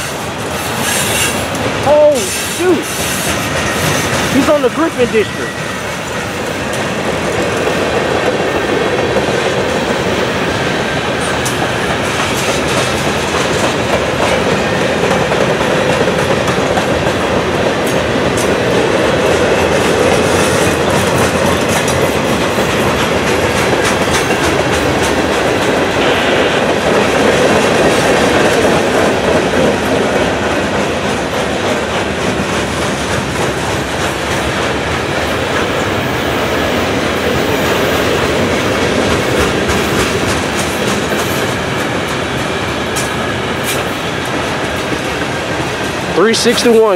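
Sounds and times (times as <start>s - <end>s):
steel wheels rumbling on rail: 0.0s - 46.9s
wheels clicking over rail joints: 11.0s - 25.8s, 38.3s - 46.8s.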